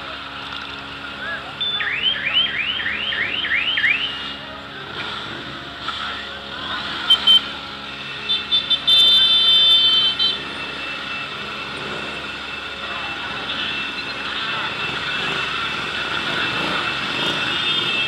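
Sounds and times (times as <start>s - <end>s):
motorcycle engines: 0.0s - 18.0s
siren-like whooping horn: 1.1s - 4.5s, 6.0s - 18.0s
long loud horn blast: 6.8s - 10.8s, 16.5s - 18.0s
short horn beeps: 7.1s - 7.6s.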